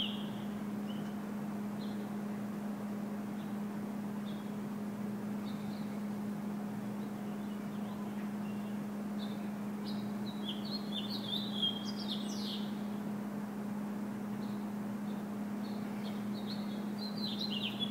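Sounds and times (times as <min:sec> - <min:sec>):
small songbirds chirping: 0:00.0 - 0:01.2, 0:01.8 - 0:02.2, 0:04.2 - 0:04.6, 0:05.4 - 0:13.0, 0:14.4 - 0:17.9
steady low hum: 0:00.0 - 0:17.9.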